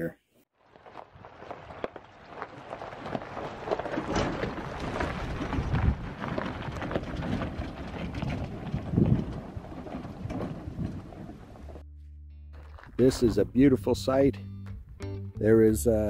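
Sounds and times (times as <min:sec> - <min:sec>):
tyres crunching over gravel: 0:00.6 - 0:11.9, 0:12.6 - 0:14.2
truck jolting thumps: 0:00.8 - 0:11.8.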